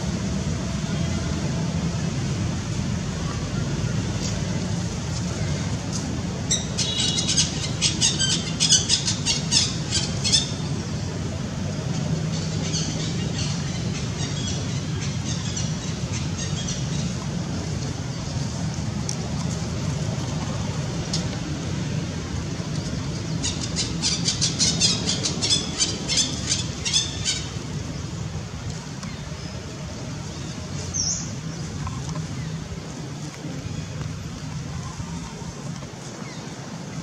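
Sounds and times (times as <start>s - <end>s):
low outdoor rumble: 0.0s - 37.0s.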